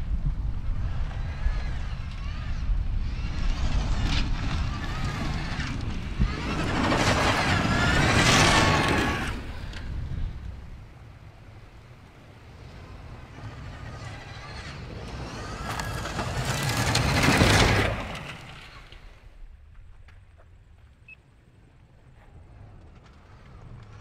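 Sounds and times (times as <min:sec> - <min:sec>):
rally car passing at speed: 0:00.7 - 0:09.9, 0:11.9 - 0:19.2
tyres on loose gravel: 0:00.8 - 0:24.0.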